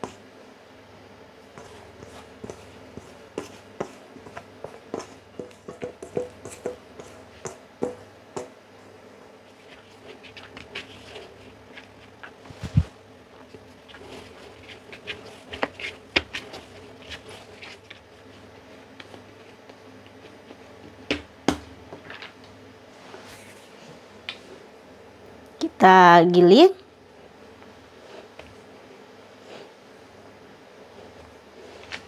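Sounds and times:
hands patting dough: 1.4s - 22.4s, 31.0s - 32.0s
dough thump: 2.4s - 8.6s, 20.9s - 22.1s.

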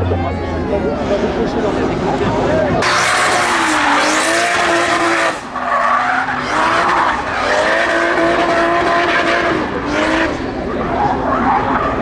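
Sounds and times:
car engine at high revs: 1.0s - 12.0s
tyres screeching: 2.8s - 9.5s.

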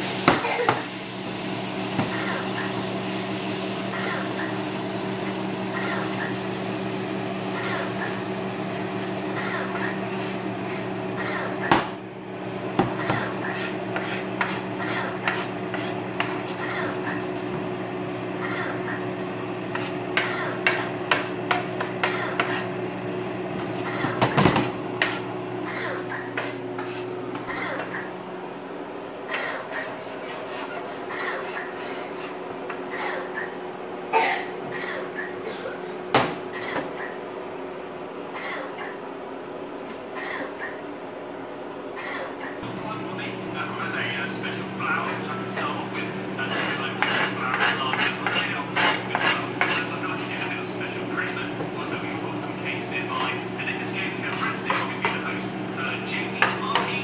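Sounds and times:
butter sizzling in a frying pan: 0.0s - 11.2s
steady low hum: 1.3s - 57.0s
spoon scraping frying pan: 13.1s - 17.5s, 26.2s - 27.9s, 44.6s - 57.0s.

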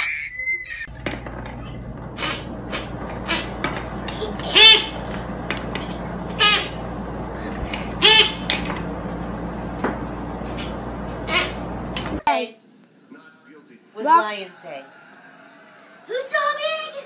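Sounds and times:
hunting call honks: 2.1s - 5.5s, 7.8s - 8.7s, 10.5s - 12.0s.

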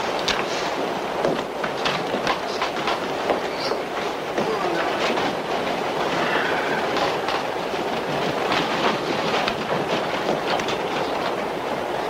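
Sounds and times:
subway train rumble and rattle: 0.0s - 12.0s
wheels clacking over rail joints: 0.0s - 12.0s.

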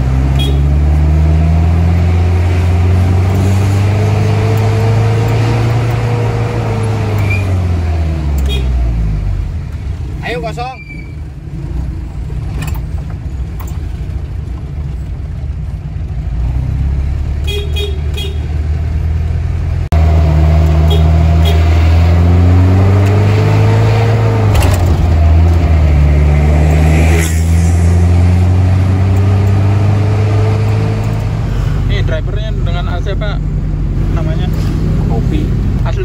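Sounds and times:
minibus engine revving: 0.0s - 10.4s, 15.7s - 36.0s
road noise: 0.0s - 36.0s
vehicle horn toots: 0.3s - 0.8s, 8.4s - 8.8s, 17.4s - 18.5s, 20.8s - 21.8s.

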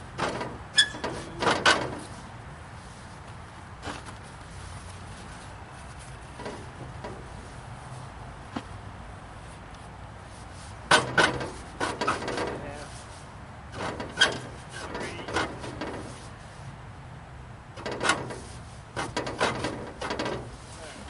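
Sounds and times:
metal scraping and rubbing: 0.0s - 3.2s, 10.6s - 16.6s, 17.8s - 20.8s.

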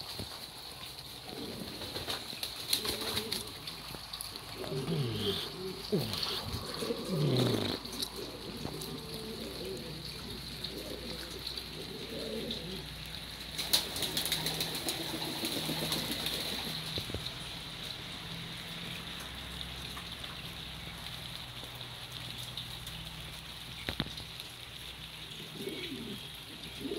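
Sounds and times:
pigeons cooing: 1.1s - 17.0s, 24.8s - 26.9s.

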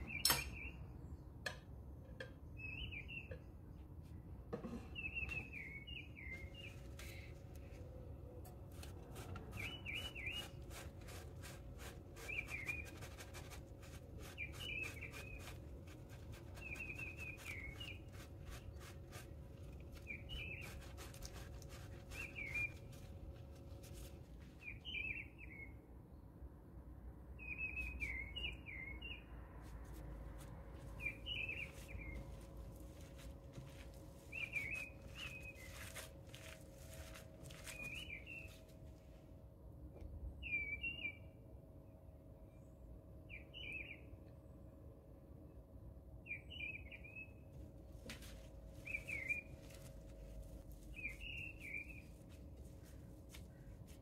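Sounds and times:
small bird chirping: 9.5s - 10.6s, 16.6s - 18.8s, 20.0s - 23.0s, 30.8s - 32.4s, 33.7s - 35.9s, 48.8s - 49.8s, 50.9s - 53.7s.

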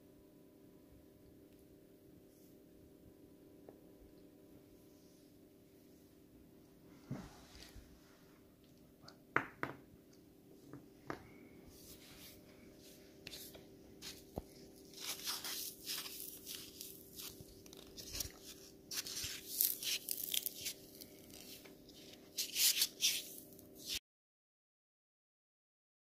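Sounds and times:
faint low hum: 0.0s - 24.0s
dry crinkling and crackling: 14.4s - 24.0s.

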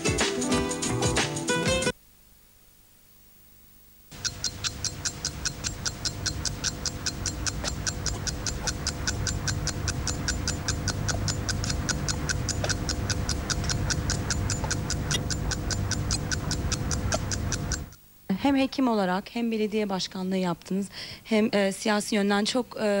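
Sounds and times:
low hum: 4.1s - 18.0s
rapid regular clicking: 4.1s - 18.0s.

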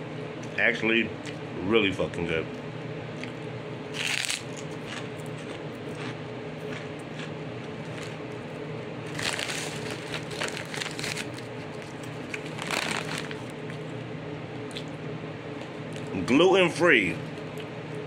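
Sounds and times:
steady low hum: 0.0s - 18.0s
crunching of food being eaten: 3.1s - 13.9s, 14.6s - 16.2s.

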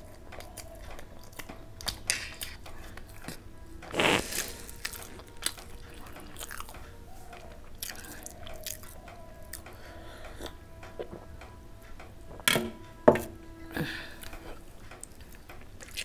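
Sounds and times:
person chewing food: 0.0s - 12.5s, 13.8s - 16.0s
wet mouth clicks: 1.8s - 6.7s.

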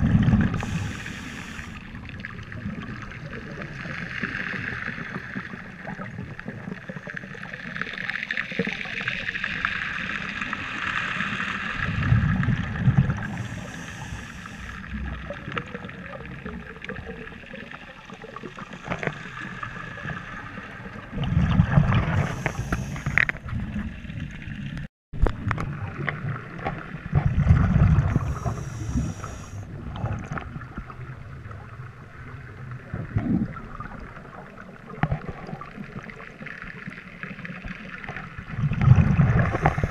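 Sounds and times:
exhaled bubbles gushing underwater: 0.0s - 39.9s
breath hissing through regulator: 0.5s - 1.8s, 13.2s - 15.0s, 18.4s - 20.2s, 22.0s - 23.4s, 28.1s - 29.7s, 39.3s - 39.9s.

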